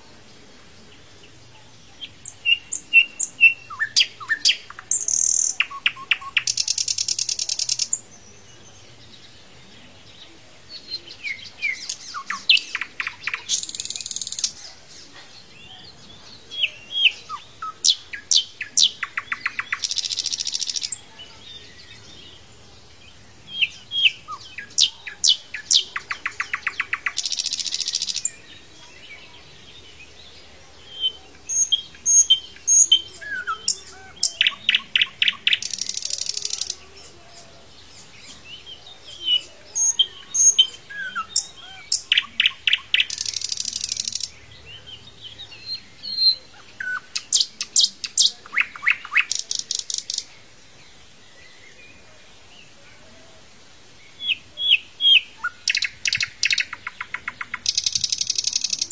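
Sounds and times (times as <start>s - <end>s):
canary singing: 2.0s - 8.1s, 15.6s - 22.4s, 23.4s - 28.6s, 30.9s - 50.3s, 54.2s - 58.9s.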